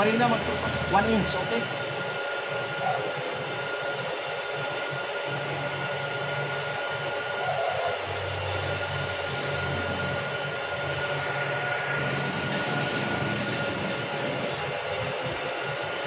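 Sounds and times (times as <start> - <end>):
milling machine drilling metal: 0.0 - 1.9.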